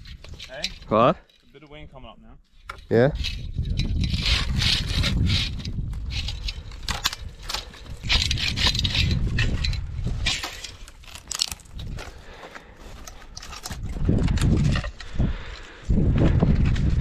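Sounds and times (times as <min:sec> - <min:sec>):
twigs and brush crackling: 0:00.0 - 0:17.0
wind gusts on microphone: 0:02.9 - 0:10.4, 0:13.7 - 0:17.0
hand saw rasping through branch: 0:03.1 - 0:11.3.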